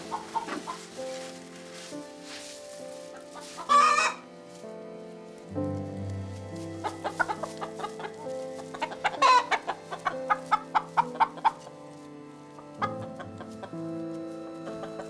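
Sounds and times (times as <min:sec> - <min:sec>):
chicken squawk: 0:00.0 - 0:00.9, 0:03.4 - 0:04.2, 0:06.8 - 0:11.7
chickens clucking: 0:00.0 - 0:15.0
sustained music notes: 0:00.0 - 0:15.0.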